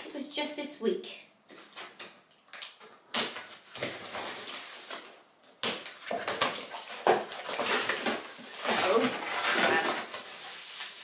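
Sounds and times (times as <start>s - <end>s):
cardboard box tearing open: 6.0s - 10.9s.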